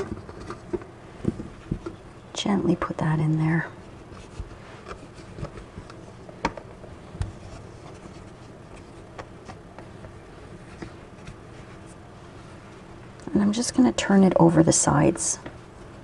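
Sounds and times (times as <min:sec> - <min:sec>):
hands rubbing dough: 0:03.1 - 0:13.2.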